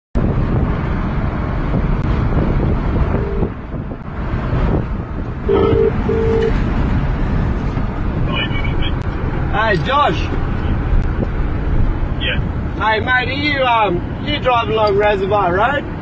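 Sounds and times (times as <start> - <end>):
road and engine noise inside car: 0.2 - 16.0
telephone ringback tone: 5.5 - 6.5.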